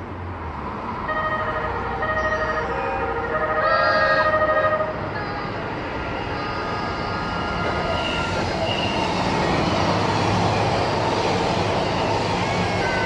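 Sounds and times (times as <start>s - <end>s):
train wheels rumbling on rails: 5.0s - 13.0s.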